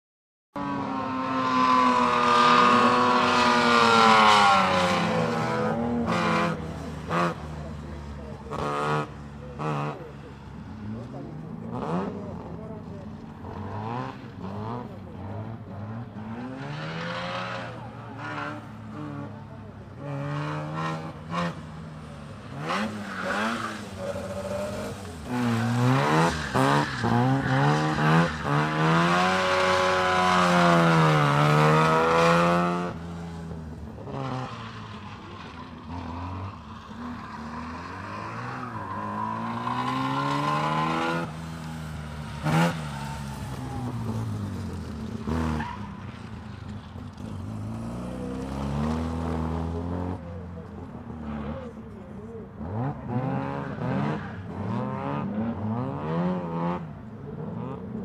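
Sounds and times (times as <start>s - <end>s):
rotary engine revving: 22.5s - 46.3s.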